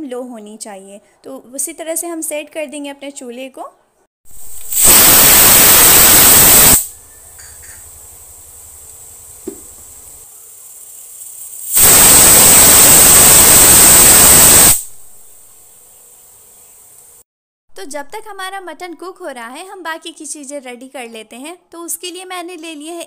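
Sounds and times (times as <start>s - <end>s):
pressure cooker whistling: 4.5s - 7.9s, 11.6s - 14.9s.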